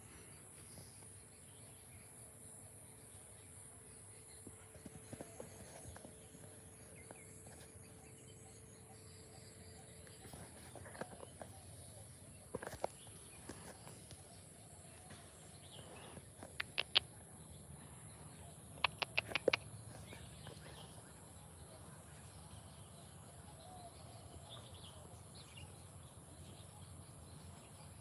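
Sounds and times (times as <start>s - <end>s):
faint bird chirps: 0.0s - 28.0s
sharp clicks: 16.4s - 17.1s, 18.8s - 19.7s.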